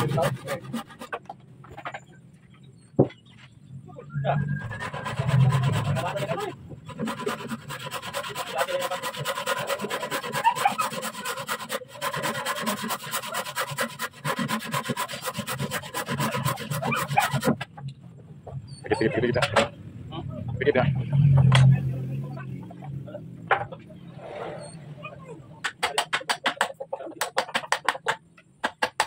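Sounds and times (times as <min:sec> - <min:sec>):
hand saw cutting wood: 0:00.0 - 0:01.4, 0:04.6 - 0:17.7.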